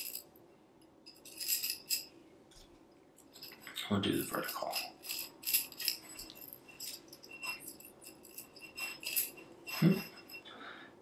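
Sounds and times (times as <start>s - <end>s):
metal tubes clinking: 0.0s - 0.3s, 1.0s - 2.2s, 3.2s - 10.6s.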